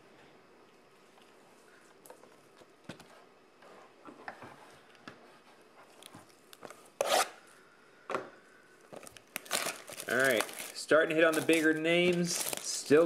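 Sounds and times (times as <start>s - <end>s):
plastic wrap crinkling: 8.9s - 13.0s.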